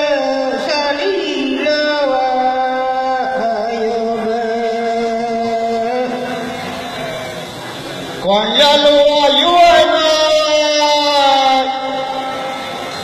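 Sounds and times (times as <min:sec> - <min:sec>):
person singing unaccompanied: 0:00.0 - 0:06.5, 0:08.3 - 0:12.6.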